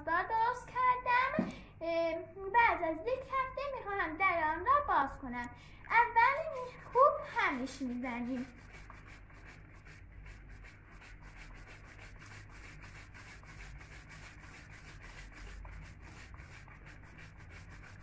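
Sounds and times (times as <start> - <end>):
plastic bottle shaken: 5.9 - 18.0.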